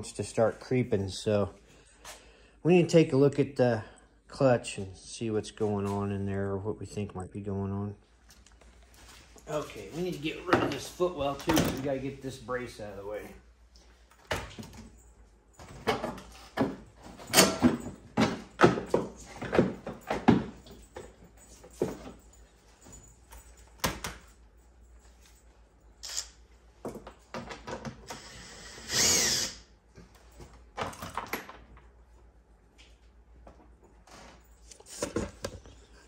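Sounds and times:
metal tools clinking: 14.5s - 27.3s
power drill running: 28.1s - 29.6s.

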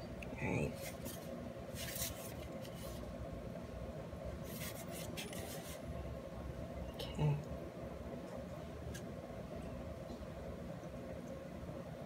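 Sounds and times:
plastic film rustling: 0.8s - 3.1s.

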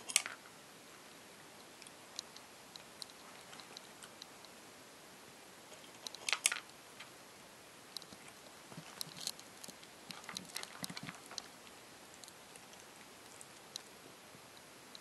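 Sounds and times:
cat crunching dry kibble: 8.0s - 13.9s.

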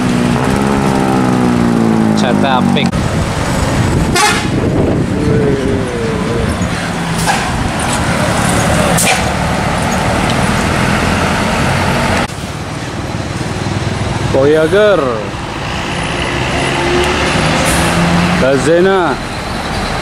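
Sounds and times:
coach engine running: 0.0s - 20.0s
short horn note: 4.1s - 4.6s.

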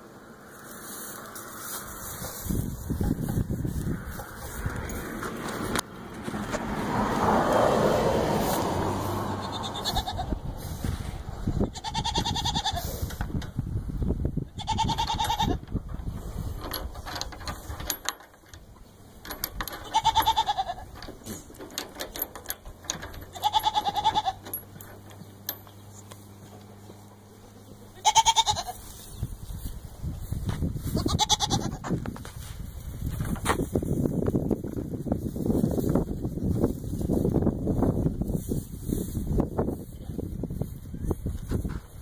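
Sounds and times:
rustling: 0.4s - 6.6s, 15.1s - 27.9s
goats bleating: 9.3s - 10.3s, 11.7s - 13.0s, 14.6s - 15.6s, 27.9s - 28.8s, 31.0s - 31.8s.

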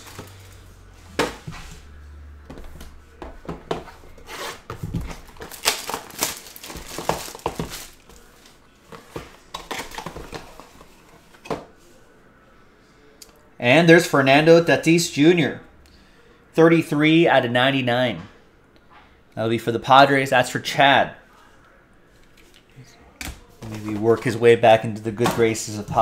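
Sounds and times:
plastic wrapping crinkling: 0.0s - 0.7s, 4.9s - 8.5s.

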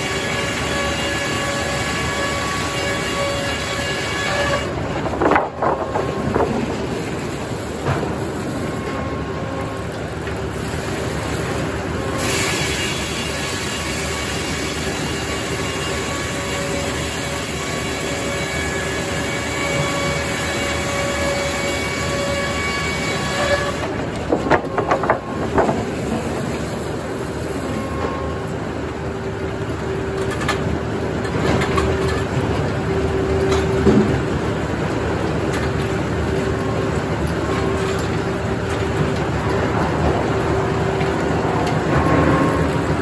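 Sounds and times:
saw blade whine cutting log: 0.0s - 30.2s
sawmill saw running: 0.0s - 43.0s
loud knocks: 24.3s - 26.0s.

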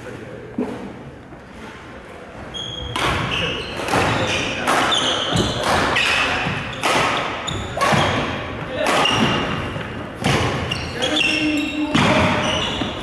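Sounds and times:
sneakers squeaking: 0.7s - 13.0s
rackets striking shuttlecock: 2.9s - 10.7s
footfalls on court floor: 11.8s - 13.0s.

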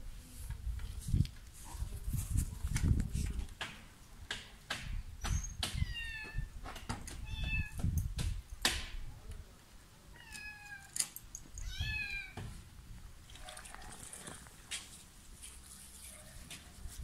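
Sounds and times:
kitten meowing loudly: 7.2s - 7.8s, 11.6s - 12.4s.

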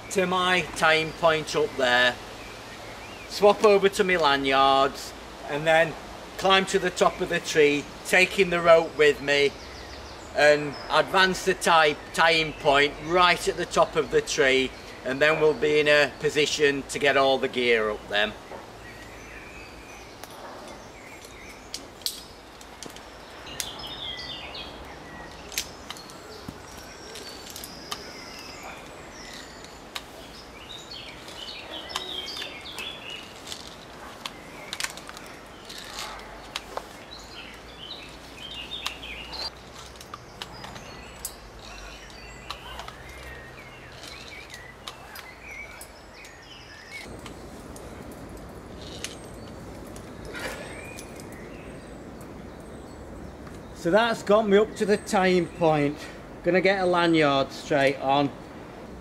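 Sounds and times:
birds chirping: 0.0s - 59.0s
climbing gear clicks and knocks: 25.3s - 30.1s, 31.3s - 37.6s, 38.8s - 51.4s.

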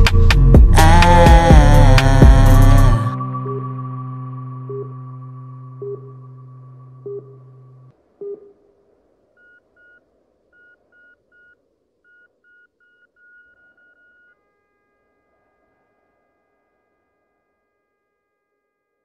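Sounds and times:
faint held chord: 0.0s - 7.9s
synth chord and plucked notes: 0.0s - 7.9s
short electronic beeps: 4.6s - 8.5s.

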